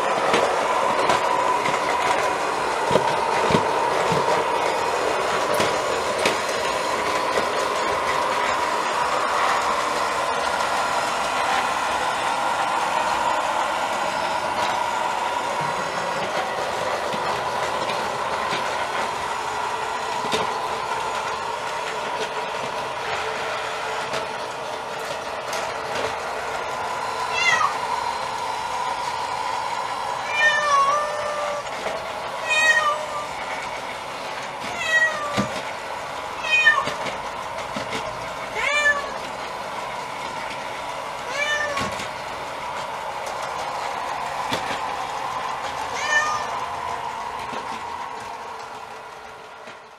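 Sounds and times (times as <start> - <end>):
robot vacuum cleaner humming: 0.0 - 49.9
cat meowing: 27.3 - 27.8, 30.3 - 31.6, 32.4 - 33.3, 34.7 - 35.4, 36.4 - 36.9, 38.6 - 39.2, 41.3 - 41.9, 46.0 - 46.6.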